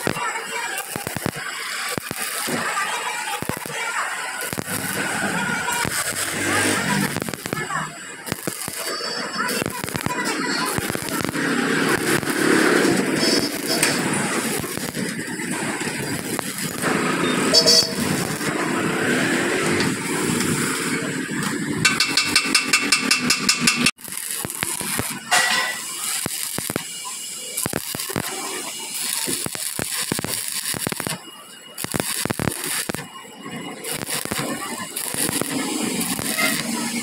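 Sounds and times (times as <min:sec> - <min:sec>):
voices: 0:00.0 - 0:37.0
welding arc crackling: 0:00.0 - 0:37.0
vehicle noise: 0:04.0 - 0:25.9.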